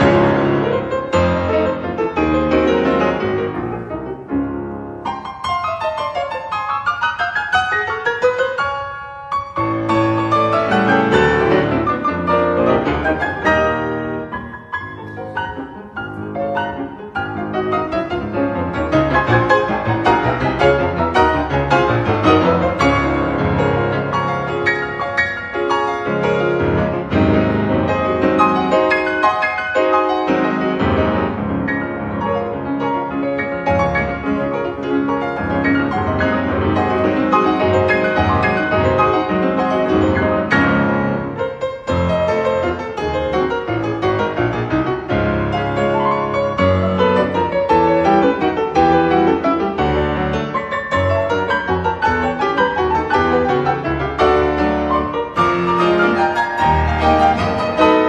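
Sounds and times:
two pianos playing folk dance: 0.0s - 58.0s.

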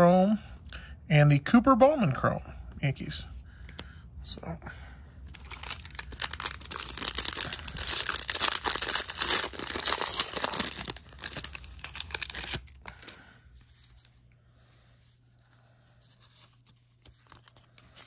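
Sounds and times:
foil wrapper tearing and crinkling: 5.4s - 13.1s.

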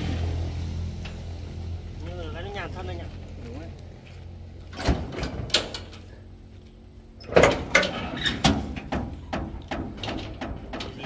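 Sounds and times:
sharp knocks and clanks: 7.3s - 11.0s.

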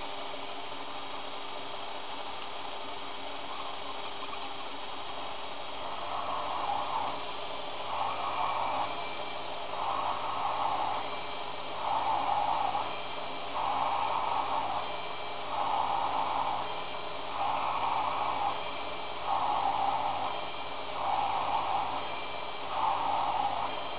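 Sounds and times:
lathe motor hum: 2.9s - 23.9s.

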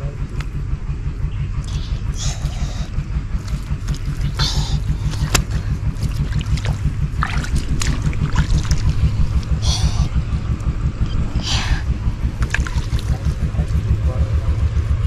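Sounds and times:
small engine running: 0.0s - 15.0s
short scuffs or splashes: 5.0s - 9.5s, 12.4s - 13.6s.

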